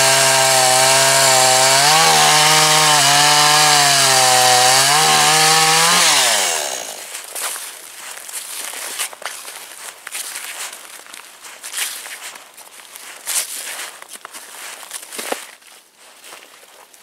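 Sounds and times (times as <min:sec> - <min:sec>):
chainsaw cutting log: 0:00.0 - 0:07.2
footsteps on thin snow: 0:07.0 - 0:17.0.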